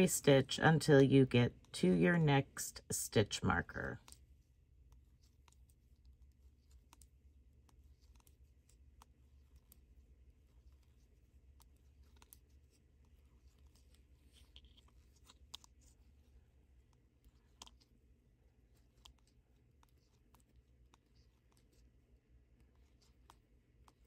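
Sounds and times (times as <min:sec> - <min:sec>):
low steady hum: 0:00.0 - 0:24.0
knitting needles clicking: 0:18.7 - 0:24.0.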